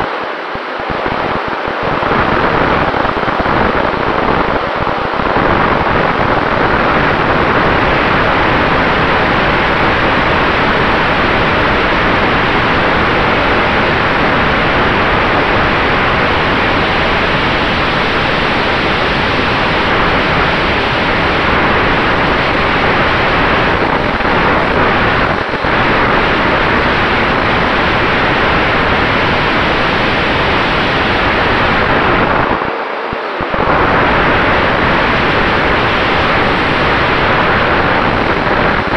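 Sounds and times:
faint steady whine: 0.0 - 38.9
wind rushing over microphone: 0.0 - 38.9.

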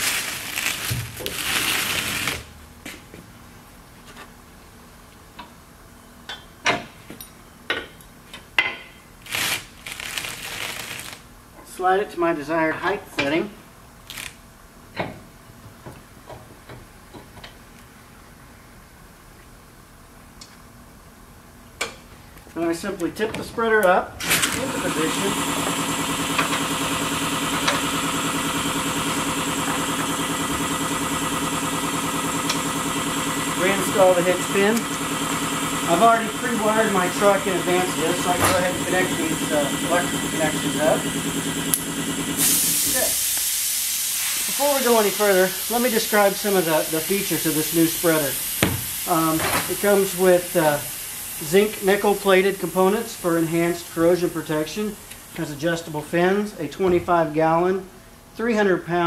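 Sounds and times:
engine idling: 24.6 - 42.4.

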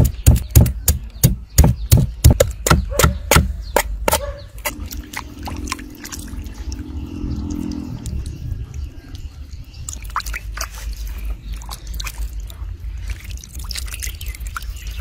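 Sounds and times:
water sloshing in a basin: 4.1 - 15.0.

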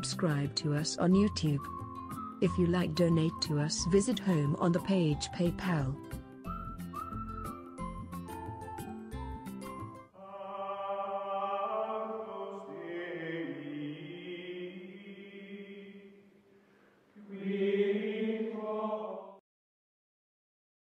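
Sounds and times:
choral chords: 10.1 - 16.4, 17.2 - 19.4.

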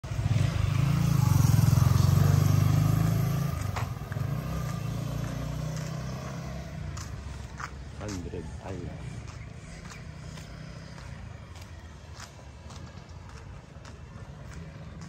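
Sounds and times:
motorcycle engine running: 0.0 - 7.8.

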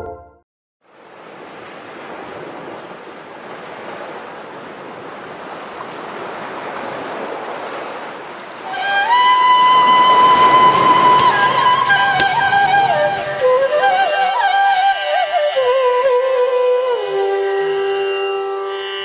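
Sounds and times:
ocean surf: 0.9 - 15.3
held musical note: 8.6 - 18.9.

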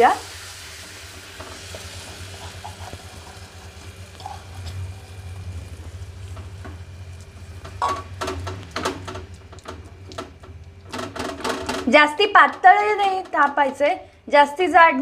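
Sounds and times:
batter sizzling on griddle: 0.0 - 11.8.

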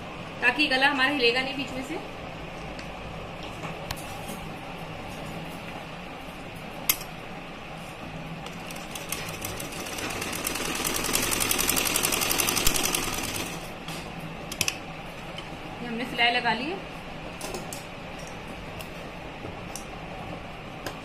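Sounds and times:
sewing machine stitching: 8.6 - 13.6.

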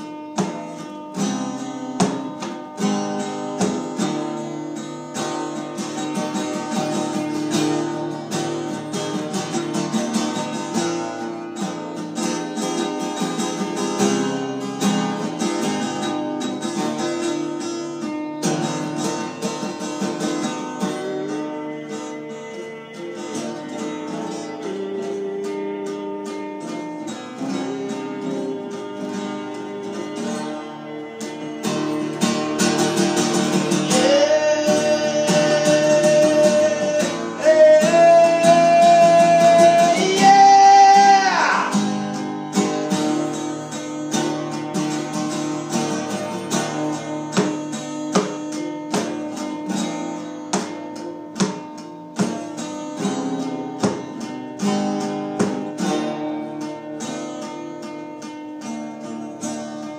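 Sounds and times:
acoustic guitar strummed and picked: 0.0 - 59.9
person singing long wordless notes: 20.9 - 32.6, 33.5 - 42.3.

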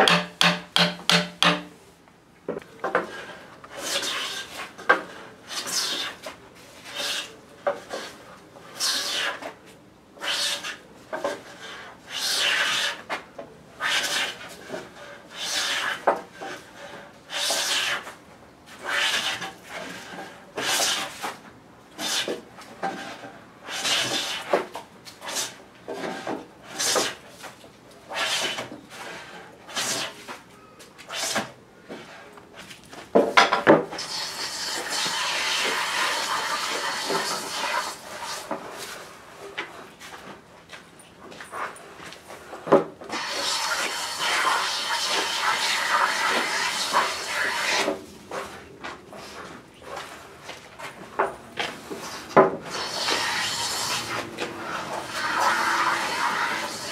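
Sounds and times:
hand plane shaving wood: 3.0 - 9.5, 10.2 - 13.1, 13.8 - 21.2, 22.0 - 27.2, 34.0 - 39.0, 43.1 - 50.2, 51.6 - 56.9.

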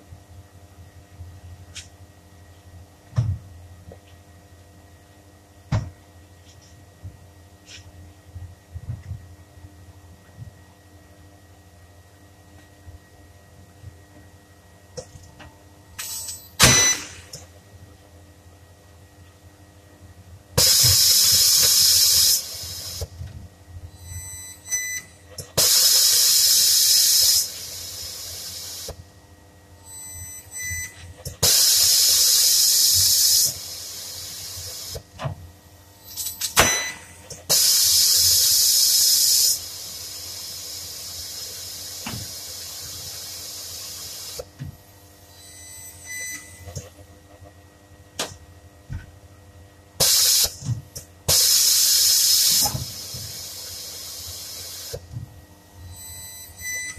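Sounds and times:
compressed air hissing: 20.6 - 23.1, 25.6 - 28.9, 31.4 - 35.0, 37.5 - 44.4, 50.0 - 50.5, 51.3 - 55.0.

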